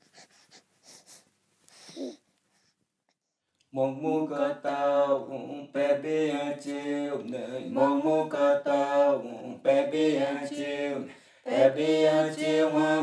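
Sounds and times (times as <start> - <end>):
person chanting unaccompanied: 3.7 - 13.0.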